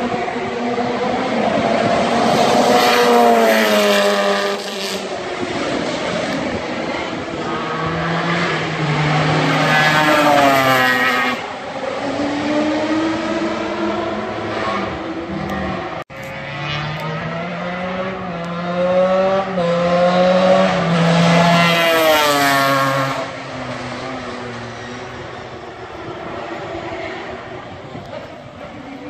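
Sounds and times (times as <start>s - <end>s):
race car engine accelerating: 0.0s - 29.0s.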